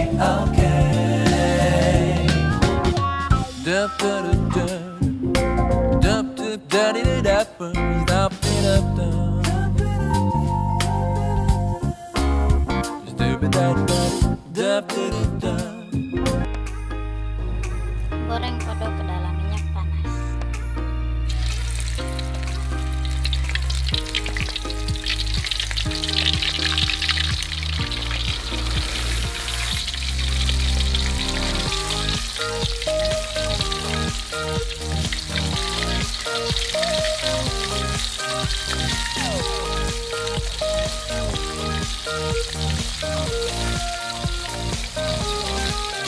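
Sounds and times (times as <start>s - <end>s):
background music: 0.0s - 46.0s
deep-frying sizzle in hot oil: 21.3s - 46.0s.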